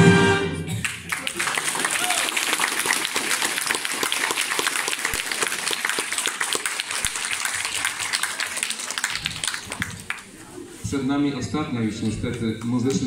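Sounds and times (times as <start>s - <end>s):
audience applauding: 0.7s - 10.4s.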